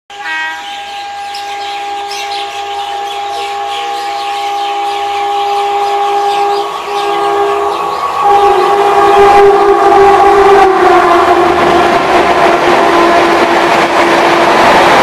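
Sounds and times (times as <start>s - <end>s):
birds chirping: 0.1s - 9.0s
train horn blast: 0.2s - 14.6s.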